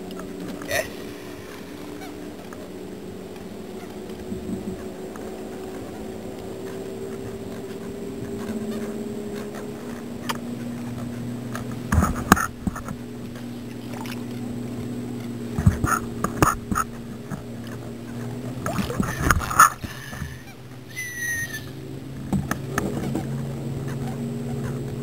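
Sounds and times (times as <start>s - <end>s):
steady low hum: 0.0s - 25.0s
handling knocks and thumps: 15.5s - 17.5s, 22.2s - 23.3s.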